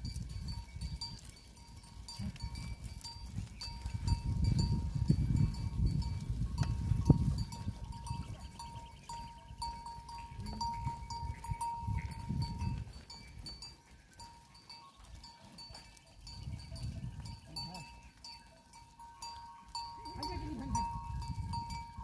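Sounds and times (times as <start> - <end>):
small bells clinking: 0.0 - 22.0
goats bleating: 20.0 - 21.0.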